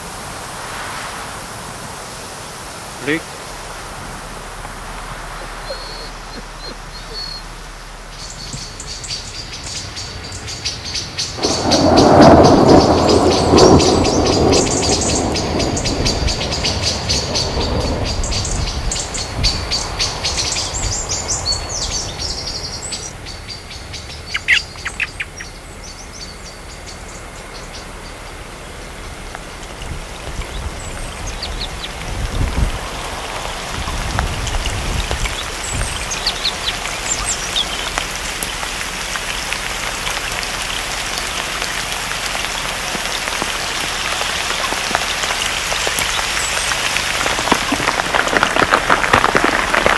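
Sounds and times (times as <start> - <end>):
low rumbles: 0.0 - 49.9
steady rain: 0.0 - 49.9
sharp bird calls: 5.2 - 38.8
high bird chirping: 5.4 - 28.3.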